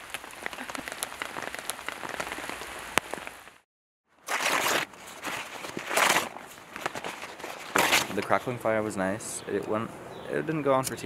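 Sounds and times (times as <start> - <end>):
rain falling on a tent: 0.0 - 3.6
paper bag crumpled: 4.2 - 8.3.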